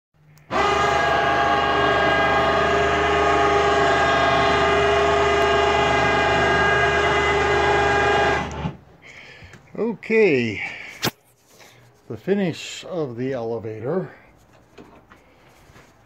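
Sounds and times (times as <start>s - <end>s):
elevator motor whining: 0.4s - 8.8s.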